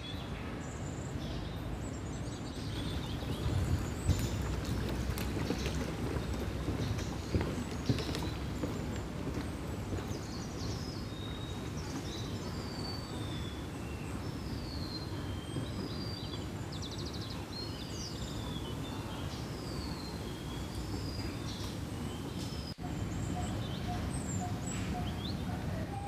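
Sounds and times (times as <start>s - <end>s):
birds chirping and whistling: 10.2s - 26.0s.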